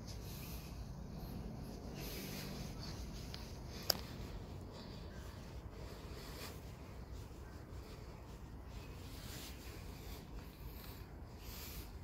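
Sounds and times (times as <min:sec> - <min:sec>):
hand stroking cat fur: 0:00.0 - 0:12.0.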